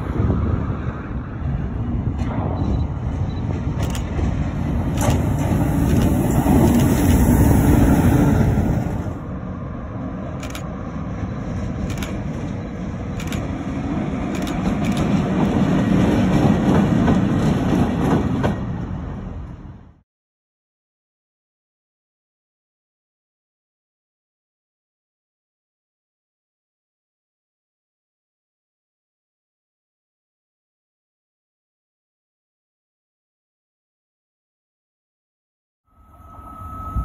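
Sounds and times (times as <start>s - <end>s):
diesel locomotive running: 0.0s - 20.0s, 35.9s - 37.0s
electric locomotive rumbling: 0.0s - 20.0s, 35.9s - 37.0s
sharp clicks over rails: 3.5s - 7.4s, 11.8s - 19.6s.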